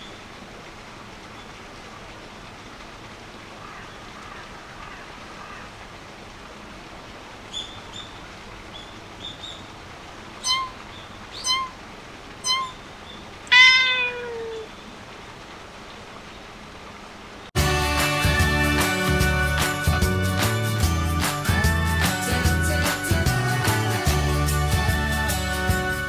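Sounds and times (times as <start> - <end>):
short beeps: 10.4 - 10.8, 11.4 - 11.8, 12.4 - 12.9
faint high chirps: 10.4 - 11.8, 12.4 - 14.8
cat meowing: 13.5 - 14.7.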